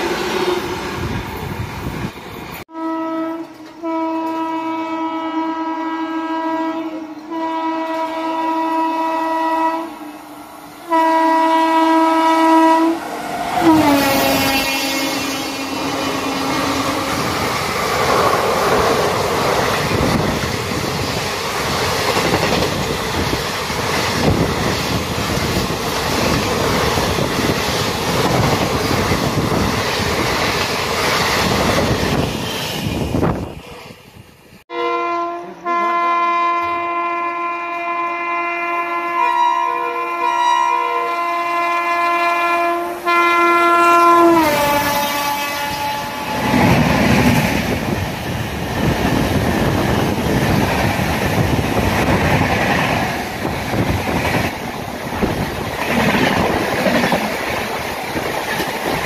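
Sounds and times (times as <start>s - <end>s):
train coaches rumbling past: 0.0s - 59.0s
locomotive horn blasts: 2.7s - 10.2s, 10.8s - 13.0s, 13.6s - 17.3s, 34.7s - 46.8s.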